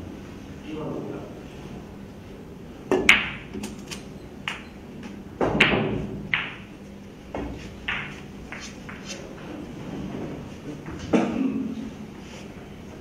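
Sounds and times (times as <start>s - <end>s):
cue tip striking ball: 2.9s - 3.6s, 5.4s - 9.4s
pool balls clicking: 2.9s - 9.6s.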